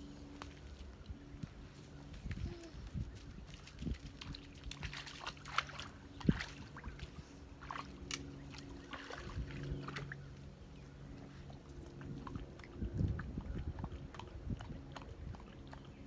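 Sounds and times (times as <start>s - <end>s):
faint low hum: 0.0s - 16.0s
dog splashing through water: 3.4s - 10.5s.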